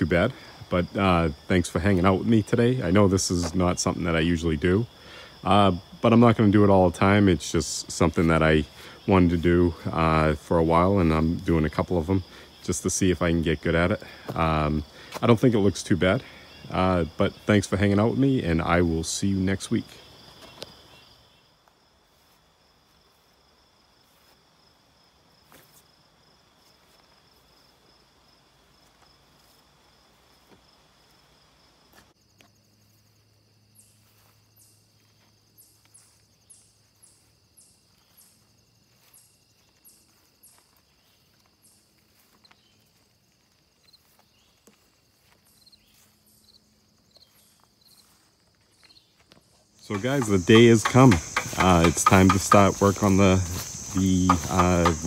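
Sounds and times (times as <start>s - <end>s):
insect trilling: 43.8s - 55.0s.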